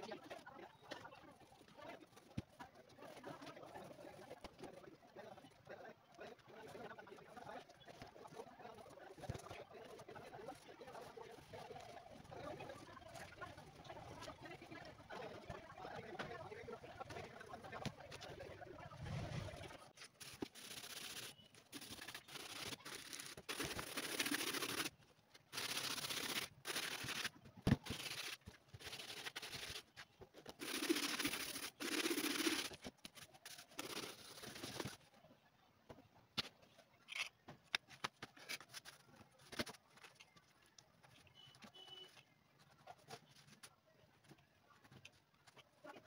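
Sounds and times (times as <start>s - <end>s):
rubbing and scraping on leather: 20.0s - 24.9s, 25.5s - 35.0s.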